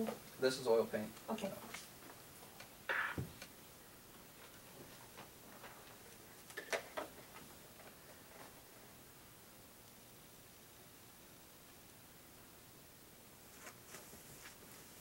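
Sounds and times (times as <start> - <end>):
short rustling: 13.4 - 15.0.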